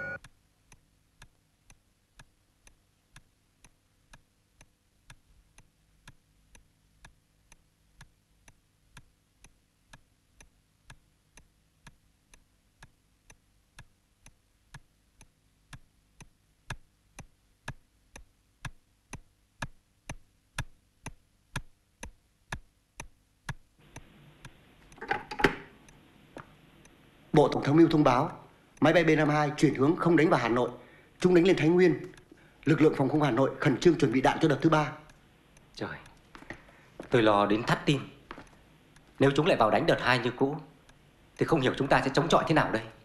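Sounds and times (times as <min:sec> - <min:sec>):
clock ticking: 0:00.0 - 0:43.0.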